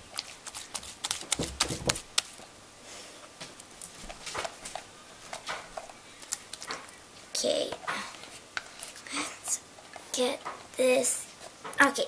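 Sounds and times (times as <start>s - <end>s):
slime clicking and squelching: 5.3s - 6.9s.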